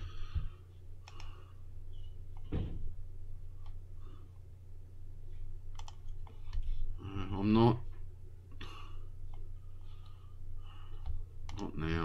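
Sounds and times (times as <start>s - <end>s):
low hum: 0.0s - 12.0s
faint mouse clicks: 1.0s - 1.3s, 5.7s - 6.7s.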